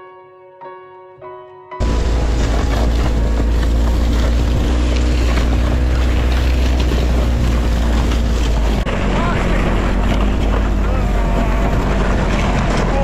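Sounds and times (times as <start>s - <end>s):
snowmobile engine droning: 1.8s - 13.0s
wind buffeting microphone: 1.8s - 13.0s.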